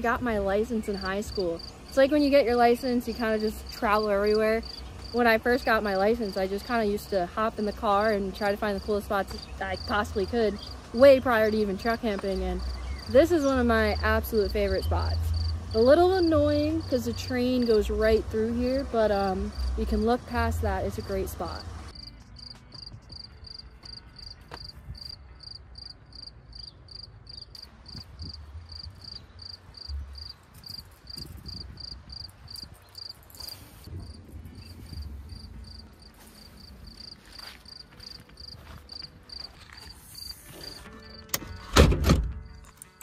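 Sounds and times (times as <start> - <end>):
cricket chirping: 22.0 - 33.6, 34.8 - 39.4.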